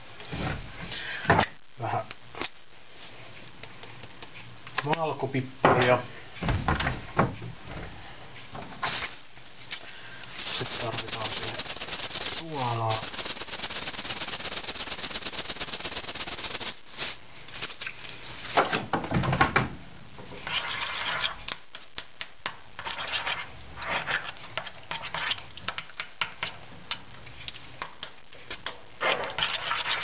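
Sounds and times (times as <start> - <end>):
steady fast rattle: 10.6 - 16.8.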